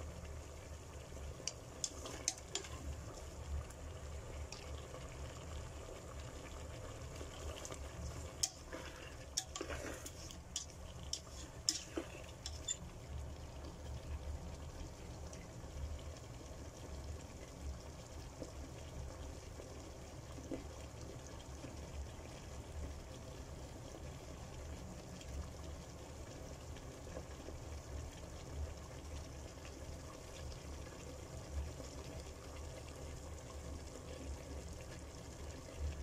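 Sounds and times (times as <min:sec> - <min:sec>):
sauce bubbling in a pan: 0:00.0 - 0:36.0
spatula clicking against pan: 0:01.5 - 0:02.7, 0:08.4 - 0:08.7.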